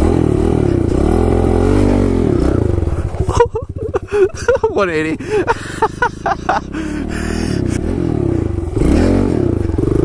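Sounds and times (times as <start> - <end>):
motorbike engine revving: 0.0 - 10.0.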